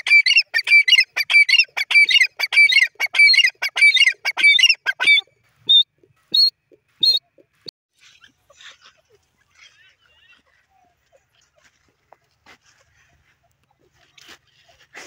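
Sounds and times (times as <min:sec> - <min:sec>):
bird calling shrill repeated notes: 0:00.0 - 0:08.4.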